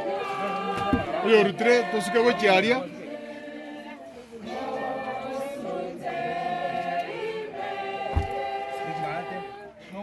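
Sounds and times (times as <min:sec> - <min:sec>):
mourners singing unaccompanied: 0:00.0 - 0:10.0
dull thump: 0:08.1 - 0:08.4.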